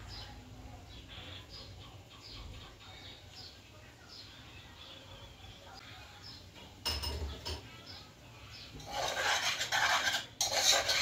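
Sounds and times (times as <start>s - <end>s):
metal spoon scraping in pot: 8.7s - 11.0s.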